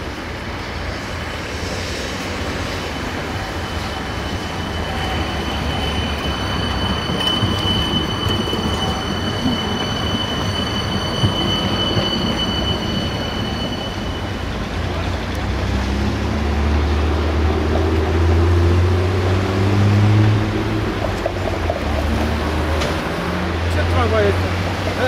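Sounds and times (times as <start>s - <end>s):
tram wheels rumbling: 0.0s - 25.0s
high-pitched wheel squeal: 2.2s - 14.8s.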